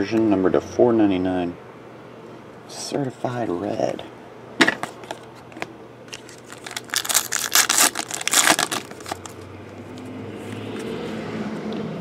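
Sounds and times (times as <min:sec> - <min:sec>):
foil pack crinkling and tearing: 0:06.1 - 0:09.4.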